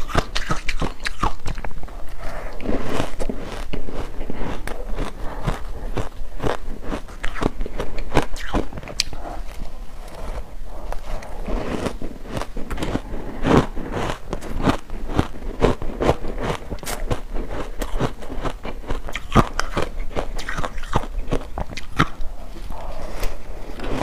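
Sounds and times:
person crunching ice: 2.5 - 10.3, 10.9 - 22.3.

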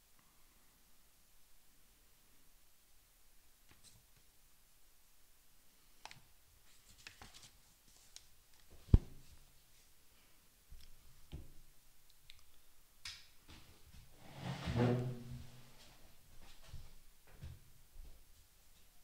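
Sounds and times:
rustling scrape: 14.2 - 16.0.

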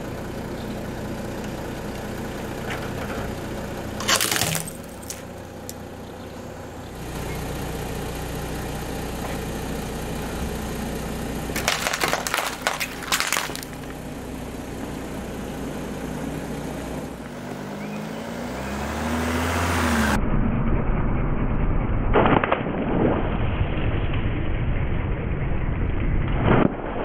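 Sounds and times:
car engine humming: 0.0 - 20.2
water beads bursting under tyre: 4.0 - 5.3, 11.6 - 14.0
plastic cups cracking under tyre: 4.0 - 5.8, 11.6 - 14.0.

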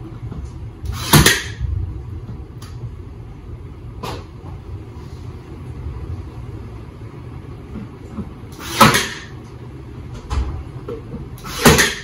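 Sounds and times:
low steady rumble: 0.0 - 8.6, 9.3 - 11.4.

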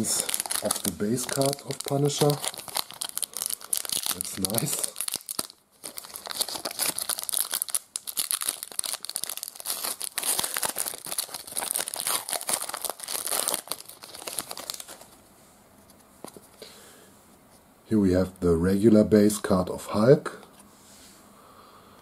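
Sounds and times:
foil wrapper tearing and crinkling: 0.0 - 15.1.

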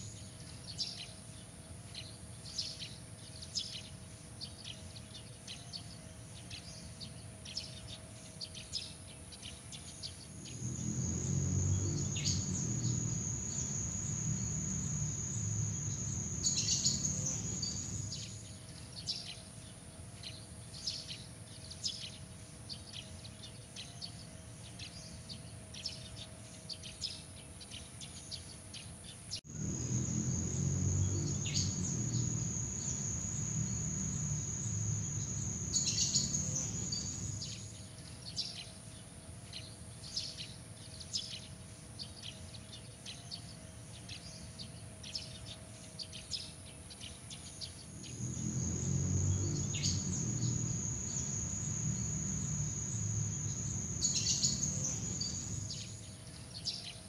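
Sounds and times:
quick insect chirps: 10.0 - 18.5, 29.4 - 37.9, 47.8 - 56.8
high-pitched insect trill: 10.3 - 18.5, 29.5 - 37.8, 47.9 - 56.1.

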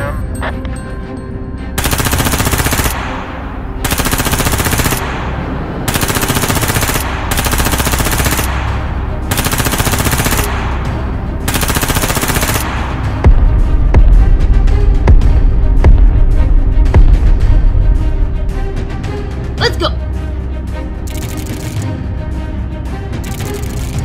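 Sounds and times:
automatic gunfire bursts: 1.8 - 3.2, 3.8 - 5.2, 5.9 - 8.7, 9.3 - 10.7, 11.5 - 12.8.

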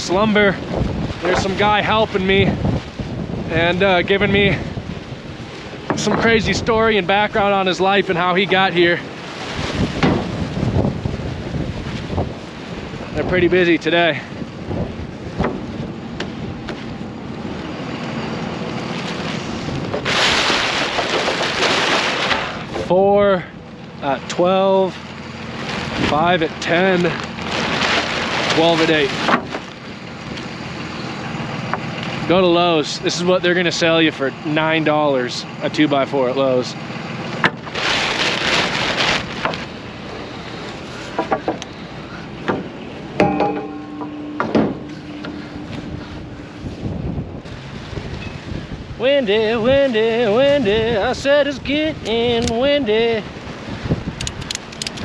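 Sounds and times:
wind buffeting the microphone: 0.0 - 23.7, 37.2 - 55.0
wooden boards clunking: 1.2 - 1.7, 5.7 - 10.9, 14.8 - 17.0, 19.9 - 22.9, 27.4 - 29.9, 37.4 - 40.0, 40.6 - 46.6
metallic ring: 43.2 - 47.3.

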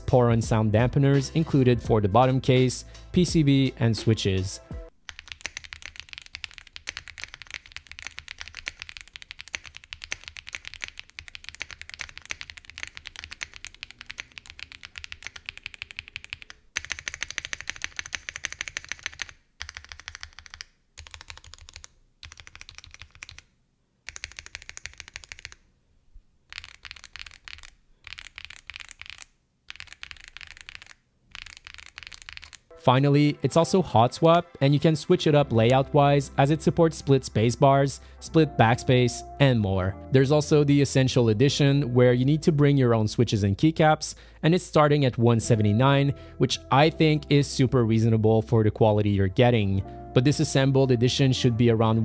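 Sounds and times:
mechanical keyboard typing: 5.0 - 23.5, 24.1 - 25.6, 26.5 - 32.7.

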